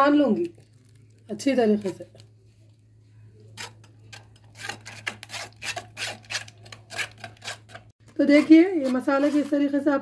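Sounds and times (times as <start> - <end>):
spoon scraping paste through sieve: 3.4 - 10.0.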